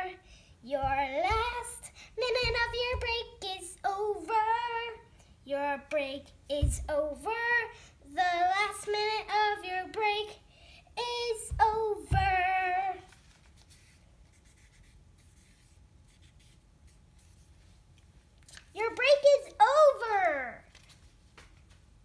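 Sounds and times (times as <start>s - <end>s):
girl singing: 0.0s - 13.2s, 18.7s - 20.7s
marker scratching on paper: 13.6s - 17.5s.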